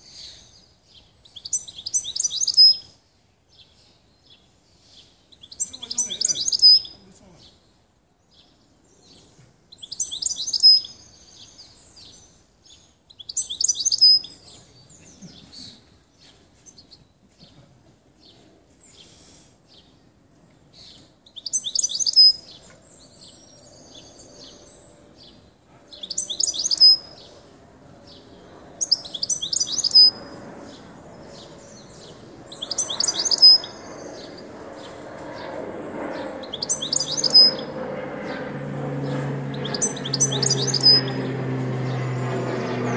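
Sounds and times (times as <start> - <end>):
goldfinch twittering: 1.4 - 2.8, 5.4 - 7.0, 26.0 - 27.3, 28.8 - 30.8, 31.6 - 34.3, 36.5 - 37.7, 39.5 - 41.1.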